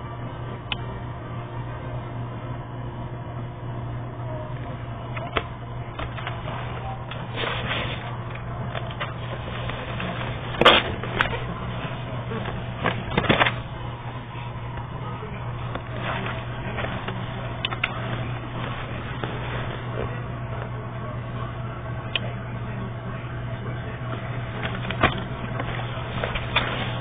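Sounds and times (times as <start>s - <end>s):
steady low hum: 0.0s - 27.0s
paper pages rustling: 6.0s - 13.6s, 15.7s - 20.7s, 24.5s - 27.0s
card pages snapping: 7.1s - 11.6s.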